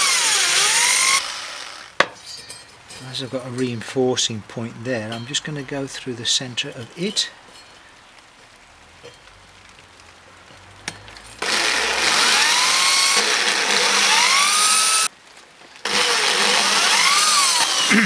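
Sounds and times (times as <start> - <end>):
electric drill boring through metal: 0.0 - 1.9, 11.4 - 15.1, 15.8 - 18.0.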